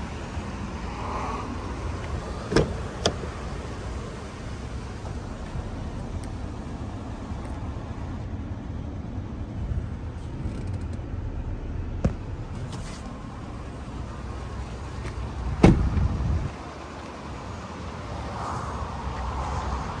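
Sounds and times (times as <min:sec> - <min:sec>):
truck engine idling: 0:01.6 - 0:18.2
loud thump: 0:12.0 - 0:12.5, 0:15.6 - 0:16.1.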